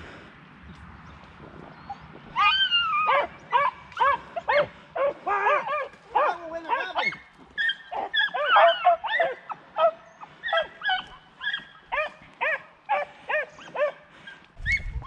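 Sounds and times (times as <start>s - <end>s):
dogs baying: 1.9s - 14.4s.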